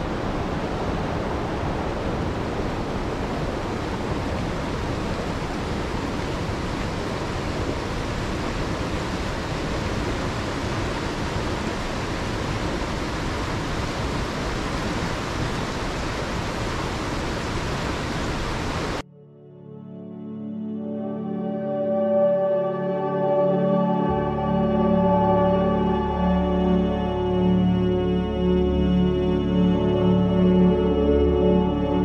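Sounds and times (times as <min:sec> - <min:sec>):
river water rushing over waterfalls: 0:00.0 - 0:19.0.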